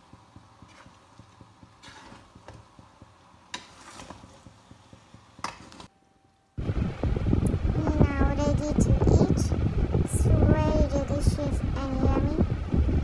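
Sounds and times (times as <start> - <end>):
utensil scraping metal pan: 1.8 - 2.3.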